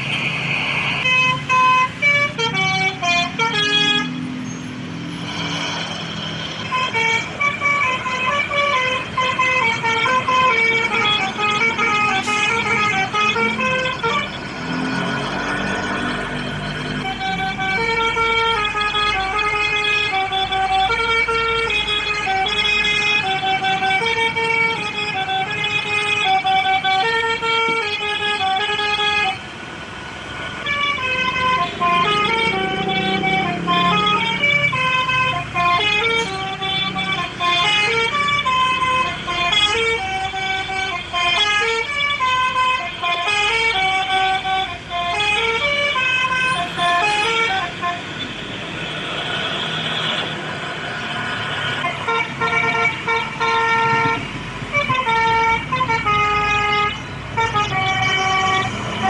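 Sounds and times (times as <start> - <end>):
multi-tone air horn melody: 0.0 - 4.8, 6.5 - 14.4, 16.9 - 29.4, 30.6 - 50.4, 51.7 - 59.0
vehicle engine rumbling past: 4.0 - 8.4, 13.4 - 17.7, 29.8 - 34.8.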